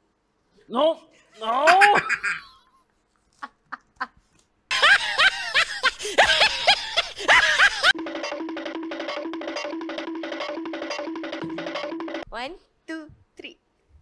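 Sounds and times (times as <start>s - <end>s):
cackling laughter: 1.5s - 2.8s, 3.4s - 8.0s.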